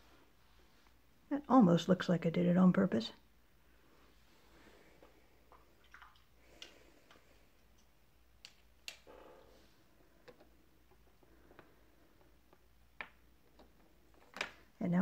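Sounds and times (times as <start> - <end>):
soft rustle: 0.0 - 1.3.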